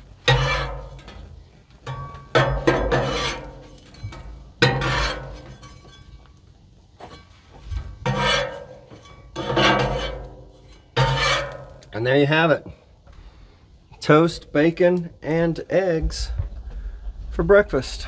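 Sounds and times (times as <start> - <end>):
metal spatula scraping griddle: 0.2 - 6.3, 7.1 - 11.9.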